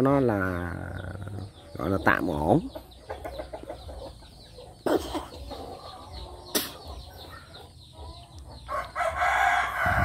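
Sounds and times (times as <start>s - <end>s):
chickens clucking: 0.0s - 10.0s
rooster crowing: 8.7s - 10.0s.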